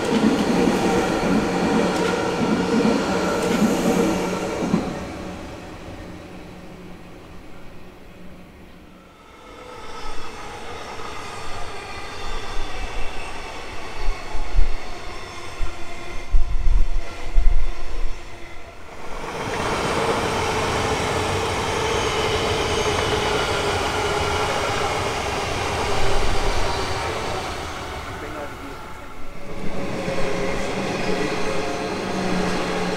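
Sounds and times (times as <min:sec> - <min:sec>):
electric train approaching with whine: 0:00.0 - 0:32.9
train rolling rail noise: 0:00.0 - 0:32.9.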